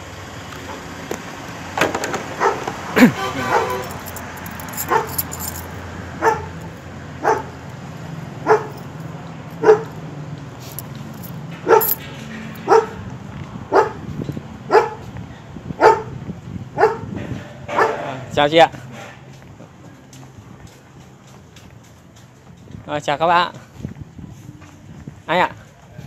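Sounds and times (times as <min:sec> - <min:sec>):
dog barking: 0:02.4 - 0:02.7, 0:03.5 - 0:03.9, 0:04.8 - 0:05.2, 0:06.2 - 0:06.6, 0:07.2 - 0:07.6, 0:08.4 - 0:08.8, 0:09.6 - 0:09.9, 0:11.6 - 0:12.0, 0:12.6 - 0:13.0, 0:13.7 - 0:14.0, 0:14.7 - 0:15.0, 0:15.8 - 0:16.2, 0:16.8 - 0:17.1, 0:17.7 - 0:18.2.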